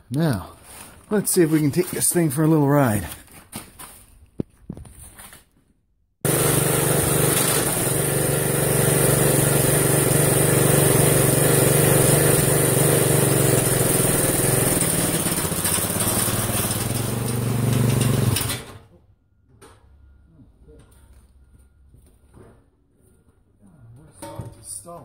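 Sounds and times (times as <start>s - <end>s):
lawn tractor engine running: 6.3s - 18.7s.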